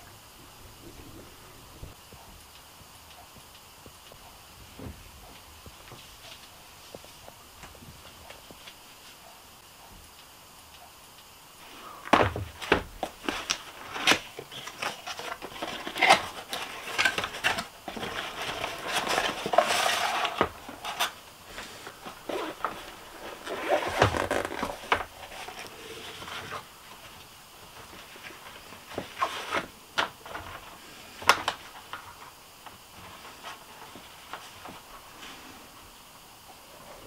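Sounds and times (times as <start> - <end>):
unpacking clicks and knocks: 12.0 - 21.2.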